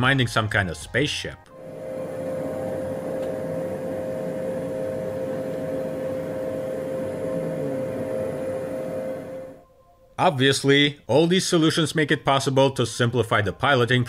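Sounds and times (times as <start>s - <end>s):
cockpit hum: 1.5s - 9.6s
fan-like hiss: 1.6s - 9.6s.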